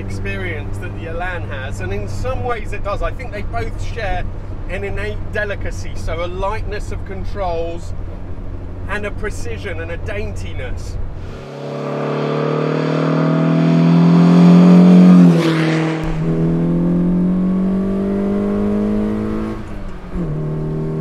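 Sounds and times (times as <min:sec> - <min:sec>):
car engine accelerating hard: 0:11.2 - 0:21.0.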